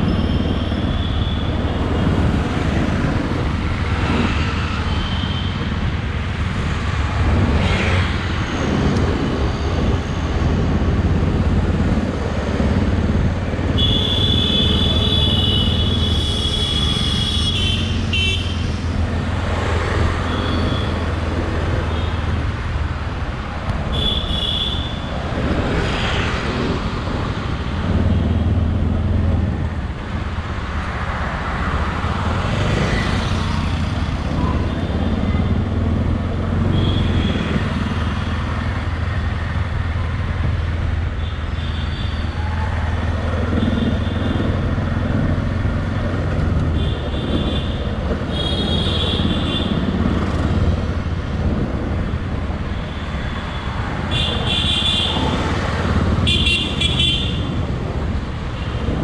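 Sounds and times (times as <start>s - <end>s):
vehicle horns honking: 13.7s - 18.7s, 56.2s - 57.5s
motorbikes and scooters passing: 24.9s - 59.0s.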